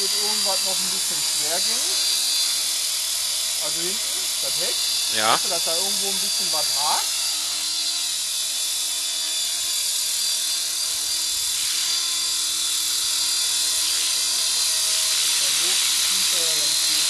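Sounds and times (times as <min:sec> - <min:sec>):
model helicopter whine: 0:00.0 - 0:17.0.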